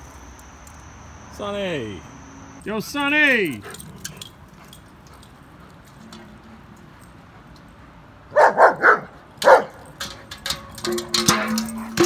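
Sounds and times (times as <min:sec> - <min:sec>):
dog barking: 0:08.3 - 0:09.7.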